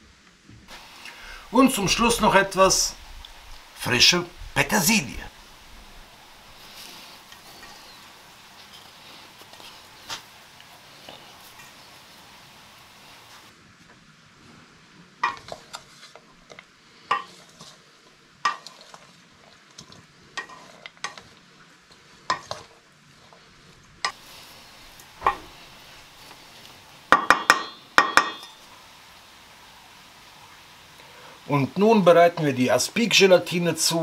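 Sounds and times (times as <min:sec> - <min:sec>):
wooden spatula scraping bowl: 0:06.4 - 0:10.3, 0:15.2 - 0:17.9, 0:18.5 - 0:24.2
taps on bowl rim: 0:27.2 - 0:28.6.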